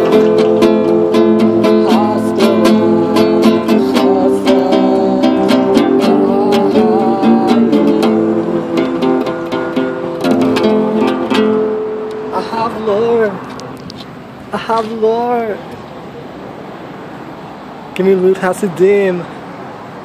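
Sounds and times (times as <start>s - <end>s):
acoustic guitar strumming: 0.0s - 15.7s.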